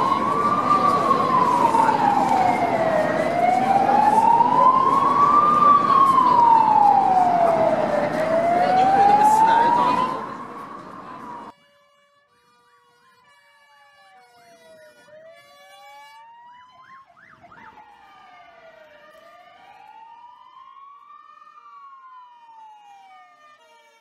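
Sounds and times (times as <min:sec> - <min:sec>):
siren wailing: 0:00.0 - 0:11.5, 0:15.0 - 0:24.0
siren yelping sweeps: 0:00.0 - 0:11.5, 0:15.9 - 0:23.6
steady siren tones: 0:00.0 - 0:11.6, 0:14.0 - 0:24.0.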